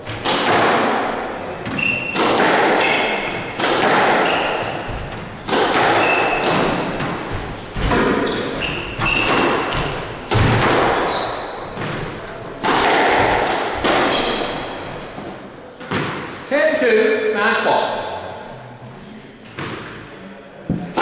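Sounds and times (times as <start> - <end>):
ball hitting walls: 0.0 - 16.4, 20.7 - 21.0
racket striking squash ball: 0.0 - 16.4, 19.5 - 20.0, 20.7 - 21.0
shoes squeaking on wooden floor: 1.6 - 3.5, 4.2 - 12.4.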